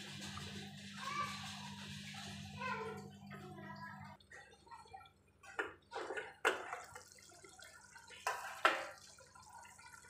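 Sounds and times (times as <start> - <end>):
thick gravy bubbling: 3.1 - 10.0.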